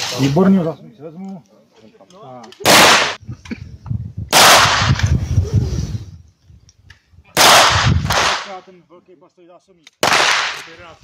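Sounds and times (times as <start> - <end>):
gunshots: 2.6 - 3.2, 4.3 - 5.1, 7.4 - 8.6, 10.0 - 10.8.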